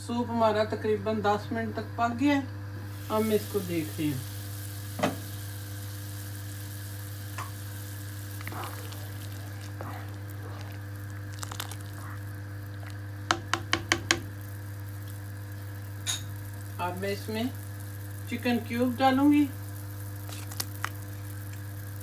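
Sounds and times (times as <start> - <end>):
steady low hum: 0.0 - 22.0
soup boiling: 2.8 - 22.0
ladle stirring soup: 8.0 - 15.3.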